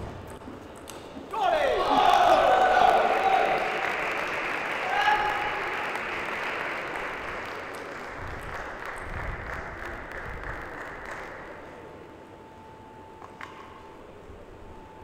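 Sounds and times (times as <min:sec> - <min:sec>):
audience applauding: 0:01.8 - 0:11.6.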